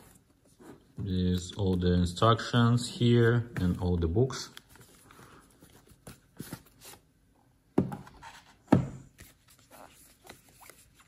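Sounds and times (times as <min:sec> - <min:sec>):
cardboard and paper rustling: 0:03.0 - 0:07.1, 0:08.0 - 0:11.0.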